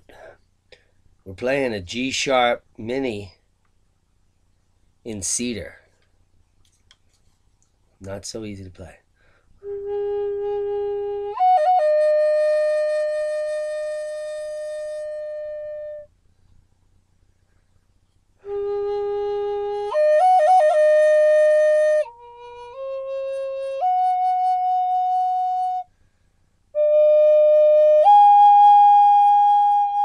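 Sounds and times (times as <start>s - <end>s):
flute playing slowly: 9.6s - 16.1s, 18.4s - 25.9s, 26.8s - 30.0s.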